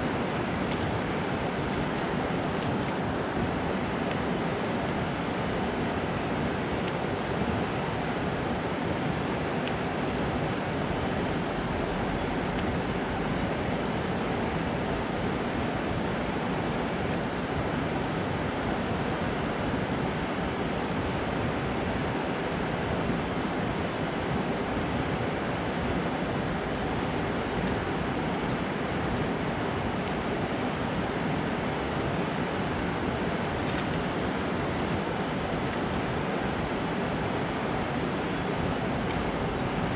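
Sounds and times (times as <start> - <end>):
water rushing over dam spillway: 0.0 - 39.9.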